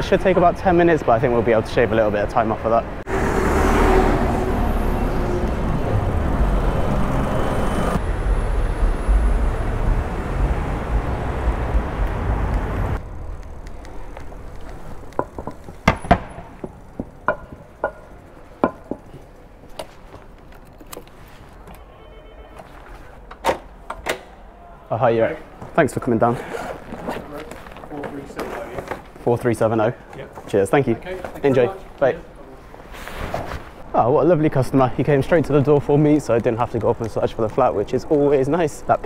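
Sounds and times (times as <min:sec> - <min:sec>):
traffic noise: 0:00.0 - 0:39.0
sharp clicks and knocks: 0:13.3 - 0:21.8.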